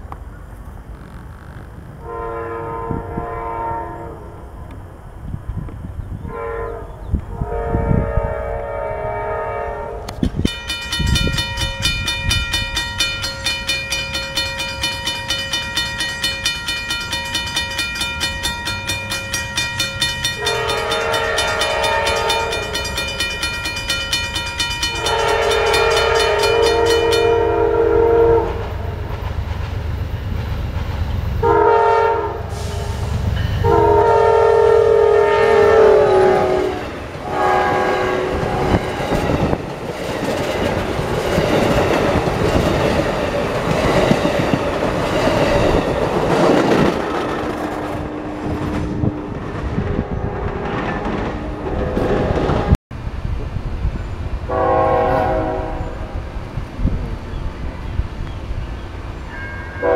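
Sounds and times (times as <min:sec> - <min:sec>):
locomotive horn blasts: 0:02.0 - 0:04.5, 0:06.2 - 0:10.2, 0:20.2 - 0:23.3, 0:24.8 - 0:28.8, 0:31.4 - 0:39.2, 0:47.7 - 0:52.8, 0:54.5 - 0:56.2
crossing bell ringing: 0:10.4 - 0:28.5, 0:33.3 - 0:34.6, 0:57.3 - 0:59.9.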